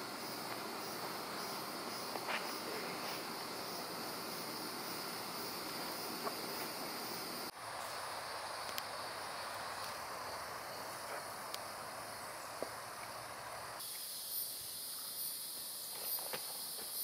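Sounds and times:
insects buzzing: 0:00.0 - 0:17.0
faint ticks: 0:08.6 - 0:08.9.

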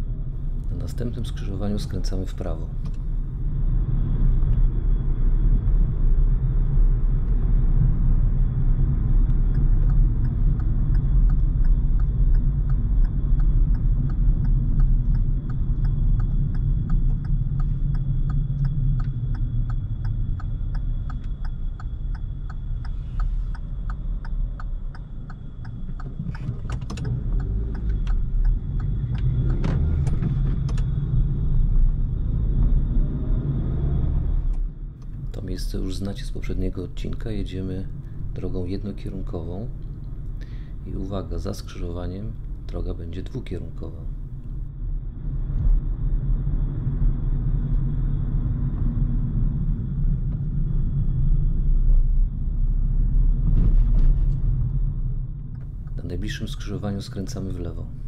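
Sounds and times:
engine and tyre rumble in car: 0:00.0 - 0:58.0
turn signal ticking: 0:06.5 - 0:32.9.

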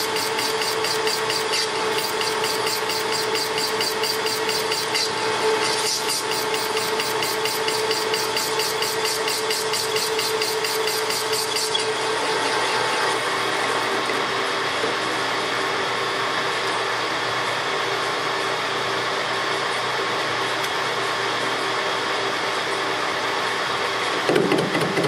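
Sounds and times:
rapid ticking of cutting tool: 0:00.0 - 0:05.1, 0:05.8 - 0:11.8
lathe motor hum: 0:00.0 - 0:24.1.

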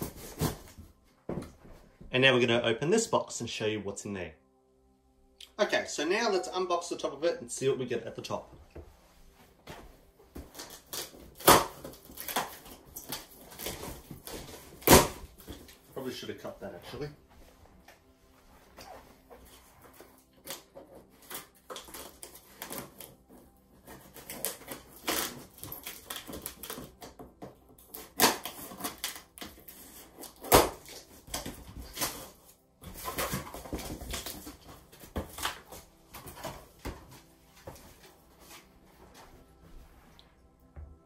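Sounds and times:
scissors cutting cardboard: 0:00.0 - 0:00.7, 0:20.3 - 0:35.7.

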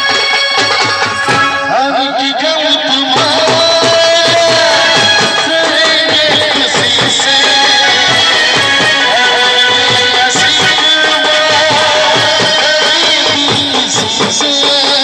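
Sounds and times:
steady drum beat: 0:00.0 - 0:15.0
amplified singing: 0:01.4 - 0:15.0.

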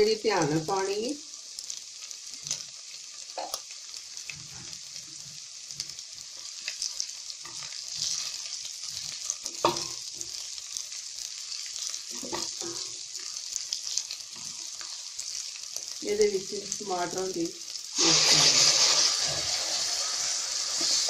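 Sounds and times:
onions sizzling in oil: 0:00.0 - 0:21.0
spatula scraping metal pan: 0:18.0 - 0:21.0.

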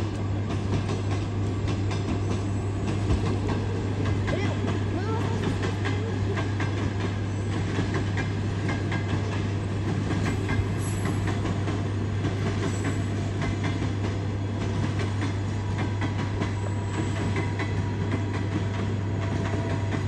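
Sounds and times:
train wheels clicking over rail joints: 0:00.0 - 0:20.0.

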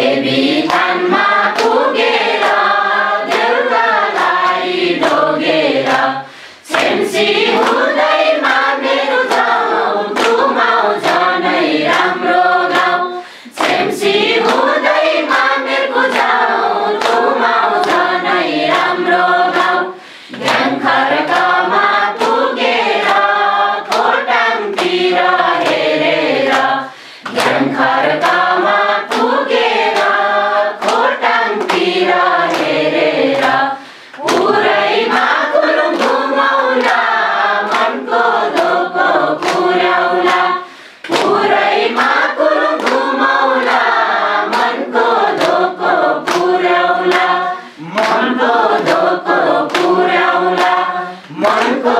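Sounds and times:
group singing in unison: 0:00.0 - 0:51.9
people clapping along: 0:00.0 - 0:51.9.

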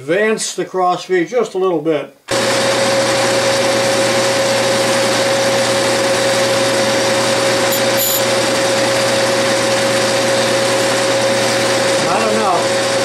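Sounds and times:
metal lathe whining: 0:02.5 - 0:13.0
faint caliper scratches: 0:07.7 - 0:08.2.

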